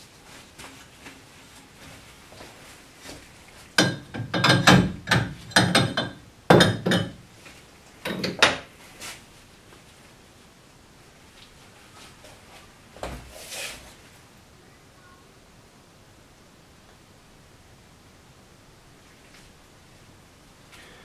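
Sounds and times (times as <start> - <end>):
glassware knocking and clinking: 3.8 - 7.2.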